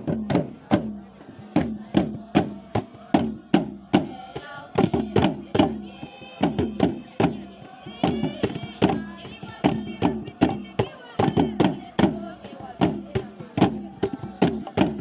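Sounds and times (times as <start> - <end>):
drum beating steadily: 0.0 - 15.0
group of voices singing: 0.0 - 15.0.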